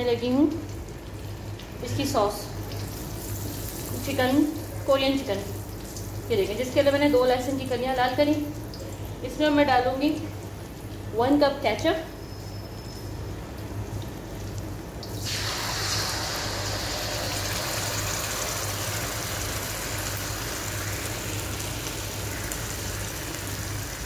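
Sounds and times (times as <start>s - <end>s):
sauce sizzling in hot oil: 2.4s - 7.4s, 12.1s - 24.0s.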